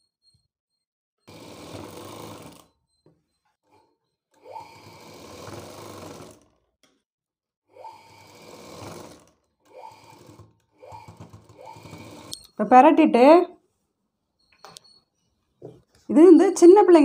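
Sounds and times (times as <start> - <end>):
sewing machine stitching: 1.2 - 2.8, 3.6 - 6.8, 7.7 - 12.5.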